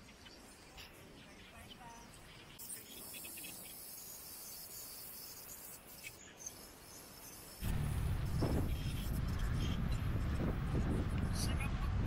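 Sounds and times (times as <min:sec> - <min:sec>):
insects buzzing: 0:00.0 - 0:09.6
wind buffeting microphone: 0:07.6 - 0:12.0.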